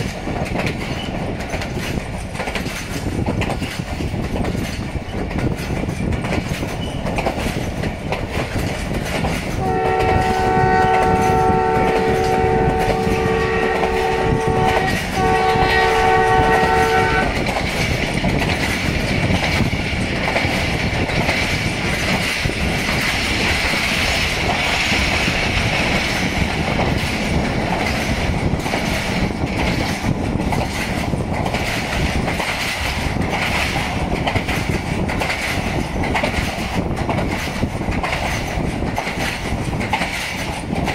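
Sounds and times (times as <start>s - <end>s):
train coaches rumbling on rails: 0.0s - 40.9s
locomotive air horn blasts: 9.6s - 17.4s.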